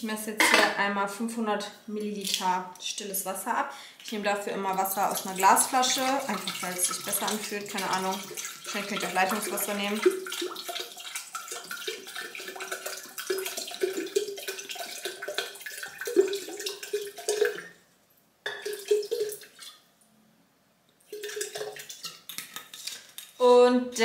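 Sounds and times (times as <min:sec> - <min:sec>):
water pouring into a jug: 0:04.0 - 0:17.8, 0:18.5 - 0:19.8, 0:21.1 - 0:23.1.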